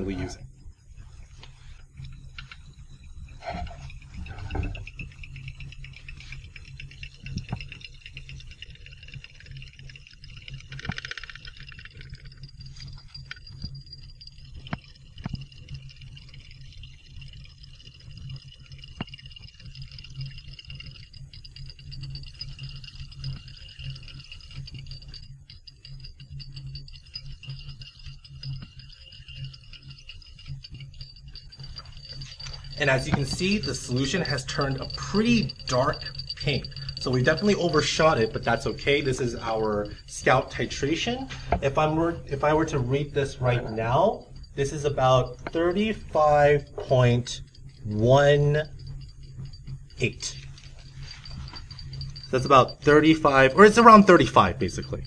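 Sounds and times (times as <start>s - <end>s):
faint high whine: 0.0s - 55.0s
stir plate humming: 0.0s - 55.0s.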